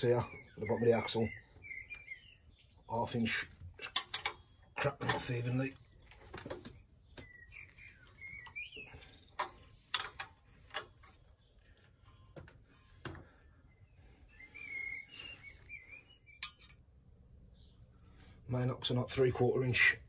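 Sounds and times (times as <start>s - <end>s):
wavering whistle-like tone: 14.2s - 16.2s.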